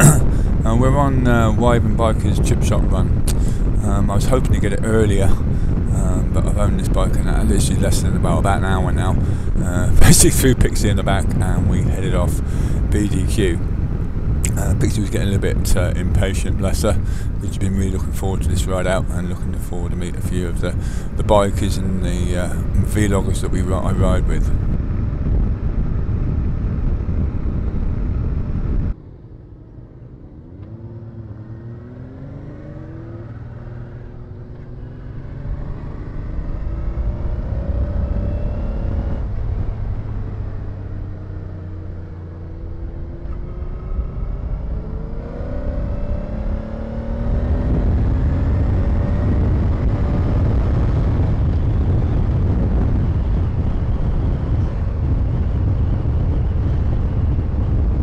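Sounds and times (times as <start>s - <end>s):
wind rumble on microphone: 0.0s - 58.0s
motorcycle engine: 29.6s - 58.0s.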